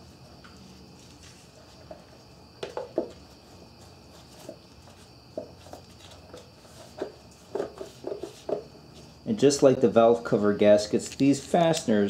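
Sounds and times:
plastic cover knocking and clicking: 0:02.6 - 0:03.1.

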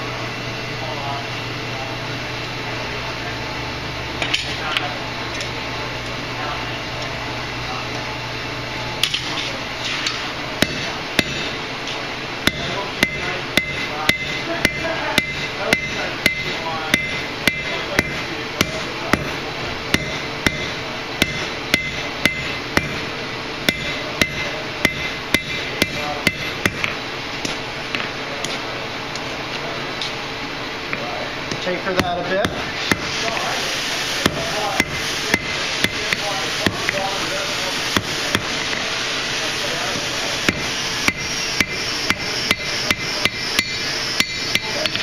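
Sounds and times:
hammer striking steel on anvil: 0:10.0 - 0:11.6, 0:12.4 - 0:27.6, 0:32.0 - 0:33.5, 0:34.2 - 0:37.2, 0:39.9 - 0:45.0.

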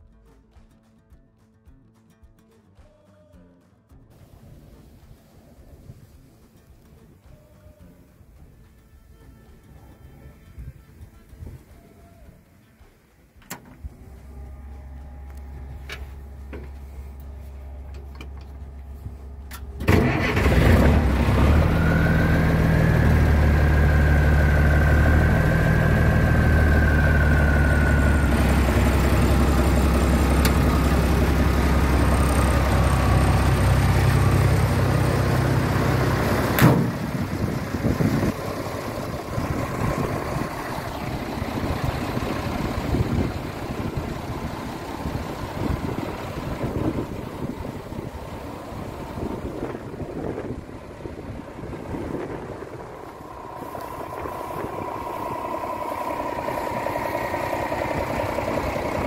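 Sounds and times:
truck engine starting and idling: 0:04.1 - 0:59.0
wind noise: 0:09.8 - 0:12.2, 0:36.1 - 0:59.0
thin high whine: 0:52.0 - 0:58.7.

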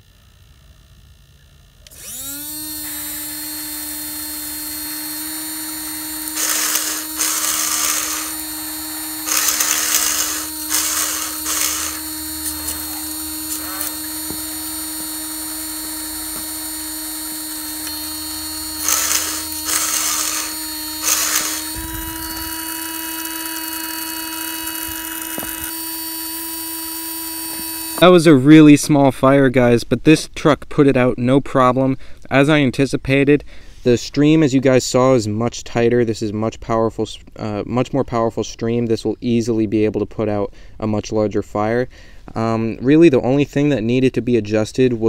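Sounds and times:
electric water pump whining: 0:01.8 - 0:28.0.

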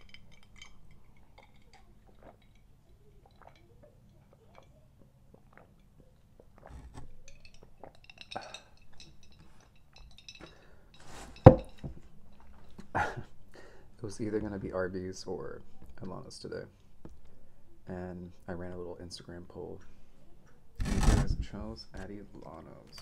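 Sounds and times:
glass clinking: 0:00.0 - 0:04.8, 0:07.1 - 0:12.8
faint gulps: 0:00.2 - 0:08.8.

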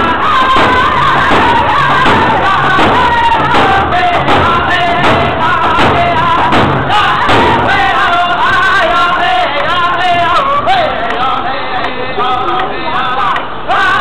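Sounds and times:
frame drum beats: 0:00.0 - 0:08.6
men singing together: 0:00.0 - 0:14.0.

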